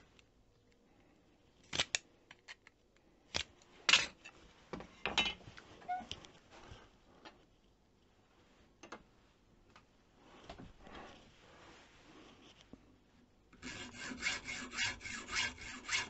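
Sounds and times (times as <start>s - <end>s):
hacksaw cutting strokes: 13.6s - 16.0s.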